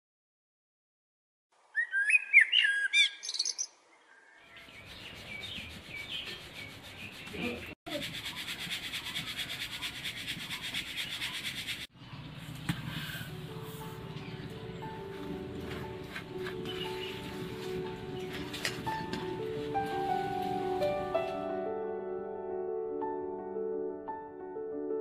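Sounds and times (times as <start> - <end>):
bird chirping: 1.7 - 12.5, 14.0 - 19.3.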